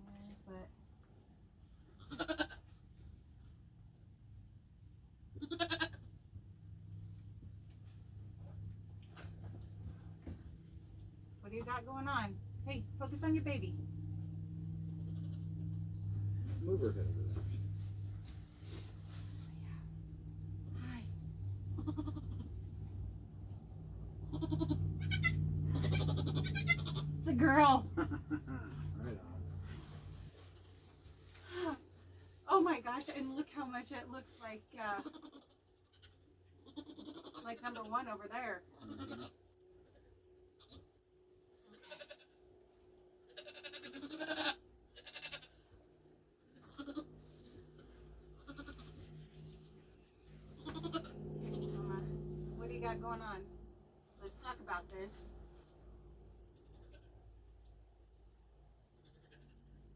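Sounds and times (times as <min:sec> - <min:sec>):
goat bleating: 0:02.0 - 0:02.7, 0:05.4 - 0:06.2, 0:14.9 - 0:15.7, 0:21.7 - 0:22.6, 0:24.2 - 0:27.2, 0:35.0 - 0:37.9, 0:38.7 - 0:40.9, 0:41.6 - 0:42.4, 0:43.3 - 0:45.6, 0:46.4 - 0:49.2, 0:50.5 - 0:52.1, 0:56.5 - 0:57.2, 0:59.0 - 0:59.8
low steady hum: 0:03.0 - 0:43.4, 0:44.2 - 0:59.9.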